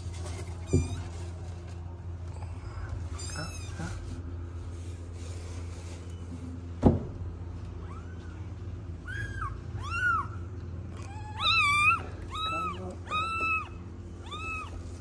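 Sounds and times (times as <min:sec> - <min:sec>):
steady low hum: 0:00.0 - 0:15.0
cat meowing: 0:11.0 - 0:14.8.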